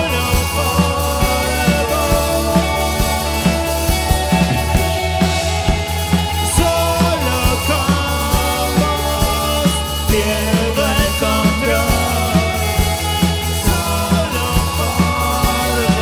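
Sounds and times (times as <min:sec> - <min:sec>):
man singing: 0:00.0 - 0:05.3, 0:06.3 - 0:16.0
bass: 0:00.0 - 0:16.0
drum kit: 0:00.0 - 0:16.0
keyboards: 0:00.0 - 0:16.0.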